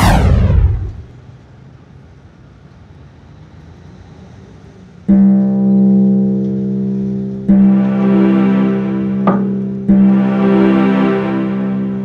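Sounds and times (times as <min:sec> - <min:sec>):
low plucked string note: 0:05.1 - 0:12.0.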